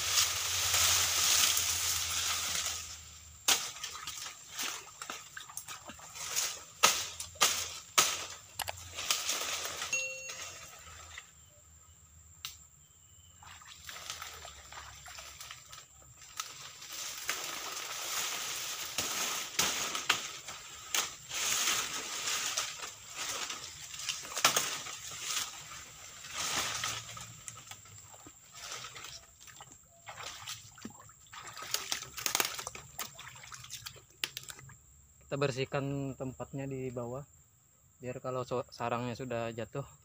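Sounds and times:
dry leaves rustling and snapping: 0:00.0 - 0:10.0, 0:13.9 - 0:29.8, 0:30.4 - 0:34.6
footsteps splashing in water: 0:00.4 - 0:07.6, 0:13.4 - 0:20.1, 0:21.5 - 0:34.6.

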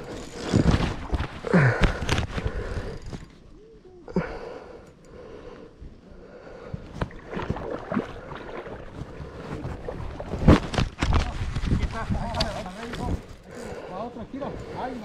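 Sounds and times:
river water sloshing: 0:07.0 - 0:11.1.

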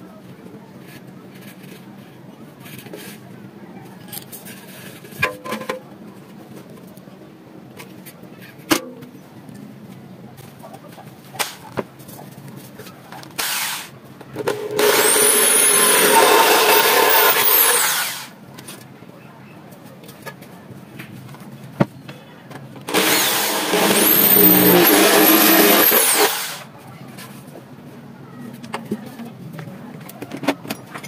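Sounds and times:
electric drill boring through metal: 0:14.5 - 0:18.3, 0:22.9 - 0:26.6.

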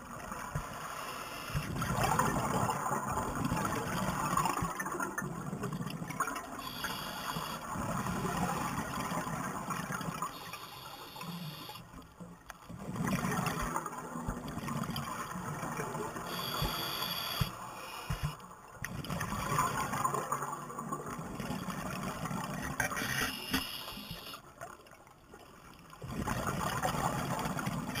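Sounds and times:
bubbling exhaust underwater: 0:01.4 - 0:11.8, 0:12.7 - 0:24.4
hissing regulator inhale: 0:06.6 - 0:07.6, 0:10.5 - 0:11.8, 0:16.3 - 0:18.4.

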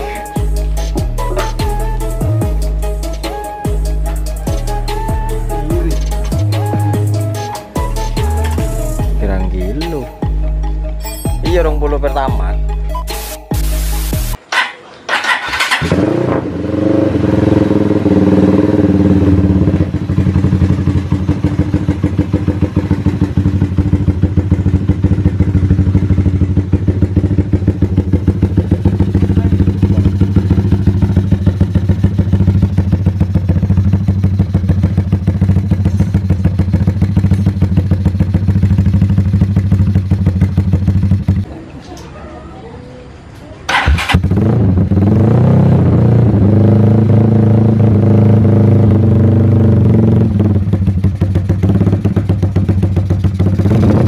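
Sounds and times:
motorcycle engine revving and idling: 0:15.1 - 0:41.5, 0:43.7 - 0:54.0.

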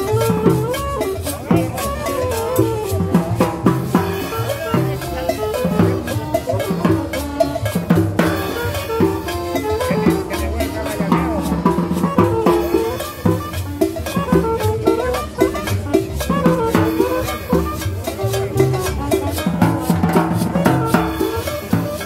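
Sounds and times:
saxophone melody: 0:00.0 - 0:22.0
snare drum kit rhythm: 0:00.0 - 0:22.0.

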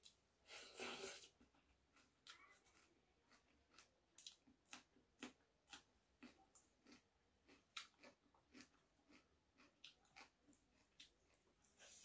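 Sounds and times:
chewing food: 0:01.0 - 0:12.0.

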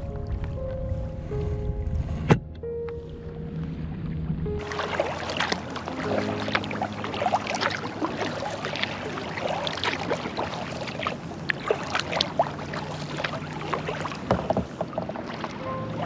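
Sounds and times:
paddle dipping in water: 0:00.0 - 0:16.0
water drips and splashes: 0:04.6 - 0:16.0.

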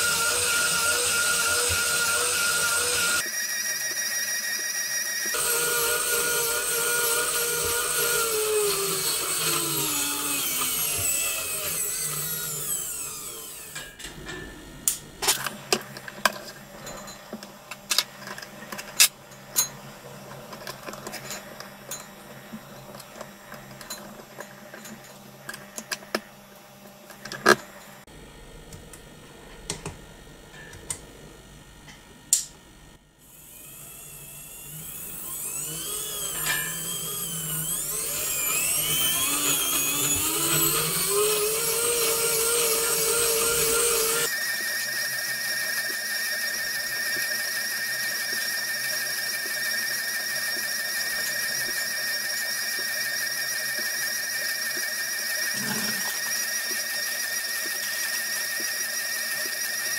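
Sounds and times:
small electric motor whining: 0:00.0 - 0:14.0, 0:33.2 - 0:59.9.

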